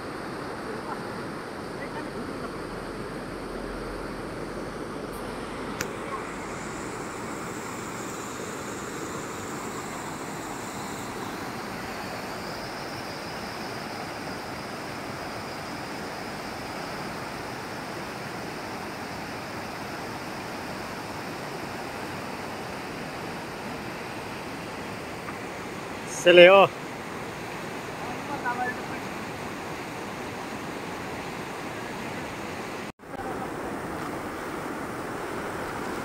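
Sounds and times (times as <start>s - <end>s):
river rushing over rocks: 0.0s - 36.0s.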